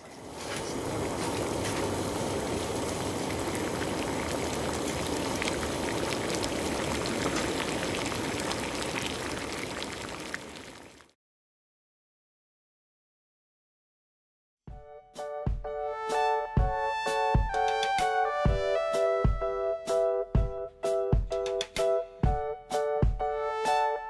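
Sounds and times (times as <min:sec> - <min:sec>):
water boiling and bubbling: 0:00.0 - 0:11.2.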